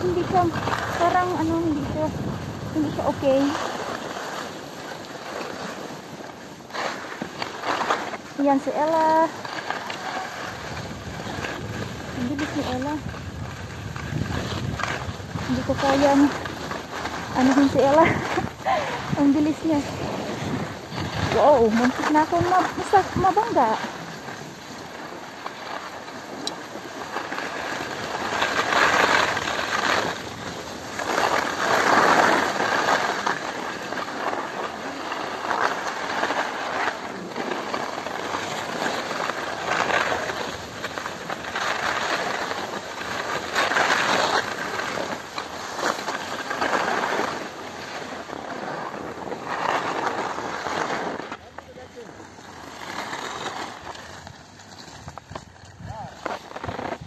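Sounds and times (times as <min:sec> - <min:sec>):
wind rush on microphone: 0:00.0 - 0:03.6, 0:10.4 - 0:23.8, 0:55.0 - 0:57.0
skis scraping over snow: 0:00.0 - 0:57.0.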